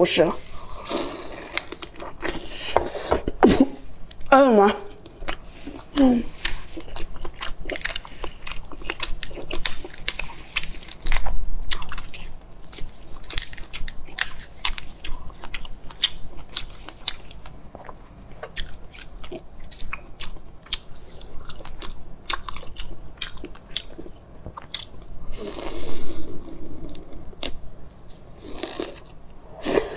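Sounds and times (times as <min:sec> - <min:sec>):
chewing and wet mouth smacking: 0:05.0 - 0:25.1.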